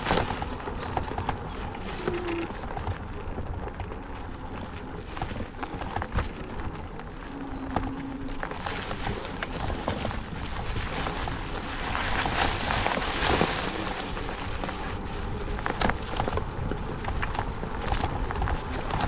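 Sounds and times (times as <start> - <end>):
tyres crunching on gravel: 0.0 - 19.0.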